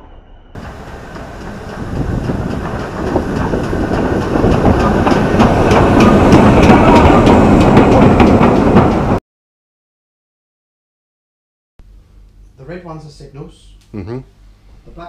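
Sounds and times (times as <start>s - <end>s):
steam train rolling past: 0.0s - 9.2s
wheels clicking over rail joints: 0.6s - 9.2s.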